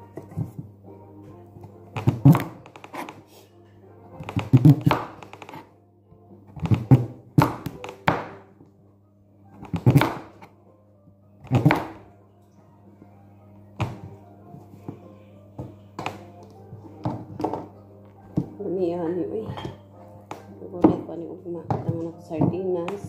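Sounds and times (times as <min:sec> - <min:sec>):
music playing: 0:00.0 - 0:23.0
knife chopping pumpkin: 0:02.0 - 0:03.2, 0:04.2 - 0:05.6, 0:09.6 - 0:10.3, 0:11.4 - 0:12.0.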